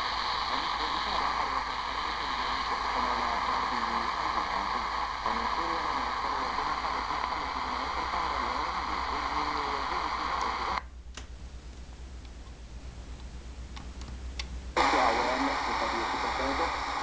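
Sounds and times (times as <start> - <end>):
voice on radio with static: 0.0 - 10.9, 14.8 - 17.0.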